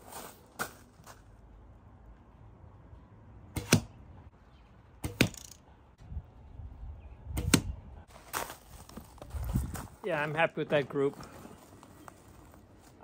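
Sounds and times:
arrows hitting straw target: 3.5 - 4.0, 5.0 - 5.6, 7.3 - 8.5.

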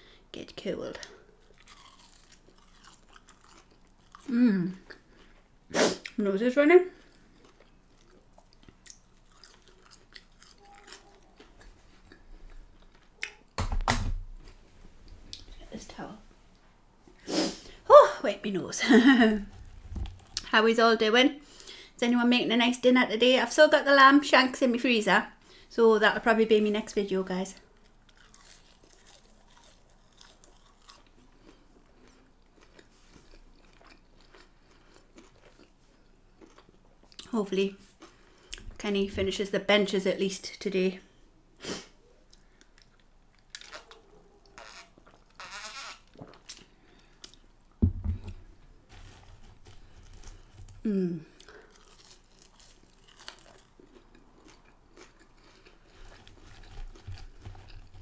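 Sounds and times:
person chewing with mouth clicks: 1.5 - 6.2, 7.0 - 13.5, 27.8 - 37.3, 50.0 - 58.0
glass mug thump on wood: 47.8 - 48.3
person humming: 50.8 - 51.3.

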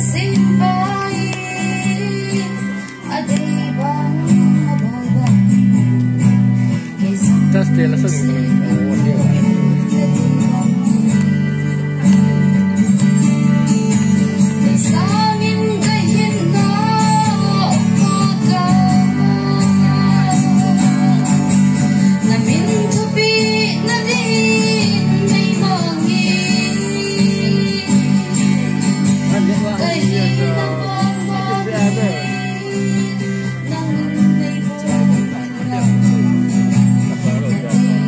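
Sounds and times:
woman singing slow melody: 0.0 - 12.3, 14.4 - 38.0
strummed acoustic guitar: 0.0 - 38.0.

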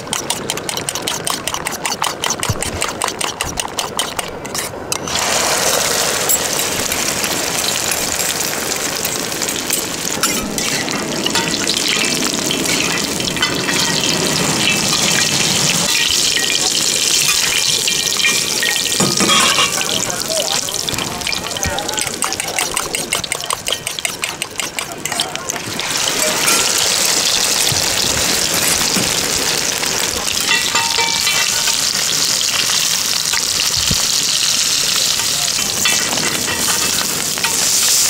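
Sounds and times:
egg mixture sizzling in hot oil: 0.0 - 38.0
spoon clinking in steel bowl: 9.5 - 15.1, 15.9 - 20.1, 21.2 - 27.8, 30.4 - 31.9.

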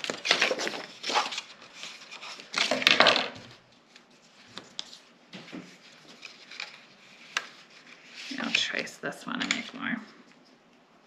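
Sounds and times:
scratchy paper rustle: 0.0 - 2.8, 3.8 - 8.9.

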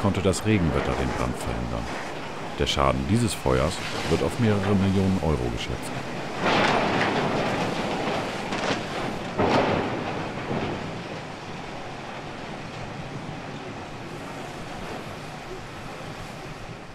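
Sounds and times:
heavy machinery rumbling and rattling: 0.0 - 11.5.

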